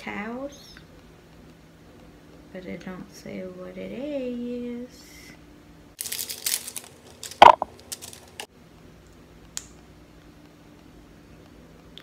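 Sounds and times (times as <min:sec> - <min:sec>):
faint steady hum: 0:00.0 - 0:12.0
plastic tube clicks: 0:07.4 - 0:07.6.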